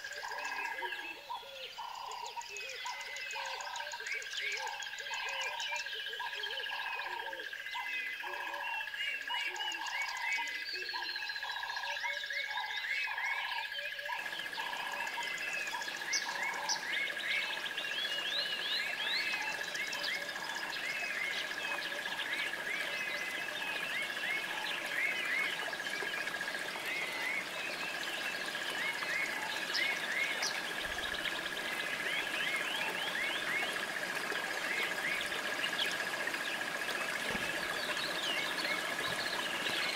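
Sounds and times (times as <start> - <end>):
frogs croaking: 0.0 - 39.9
high-pitched insect drone: 14.1 - 39.9
hissing chorus: 14.2 - 39.9.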